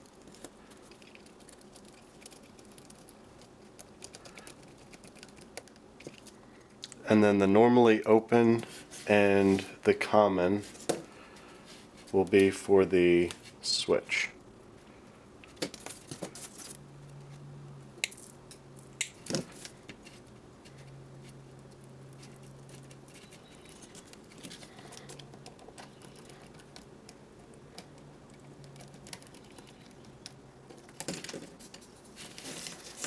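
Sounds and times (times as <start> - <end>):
small clicks and rustles of wiring: 0.0 - 7.0, 18.0 - 33.0.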